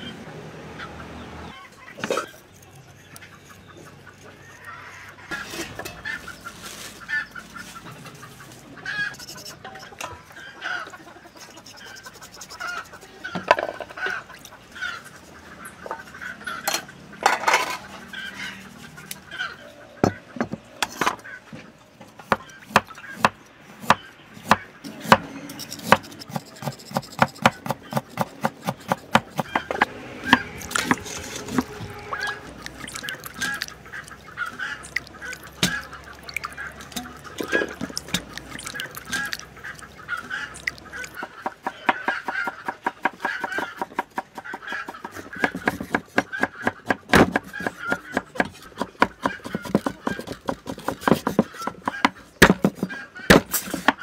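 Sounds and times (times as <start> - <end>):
hands rubbing wet fish in bowl: 11.4 - 13.1, 30.4 - 41.4.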